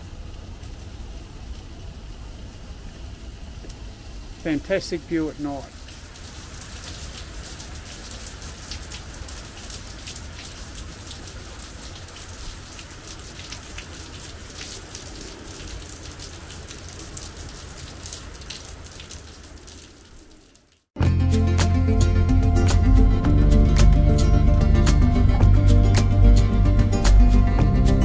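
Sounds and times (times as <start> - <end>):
raindrops ticking on a surface: 0.0 - 21.0
steady rain falling: 0.0 - 21.0.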